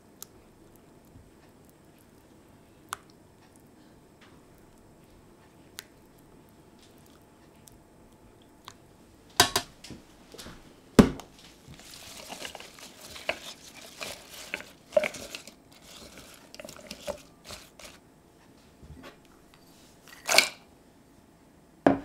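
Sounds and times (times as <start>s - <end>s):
leaves rustling and crinkling: 11.3s - 18.0s.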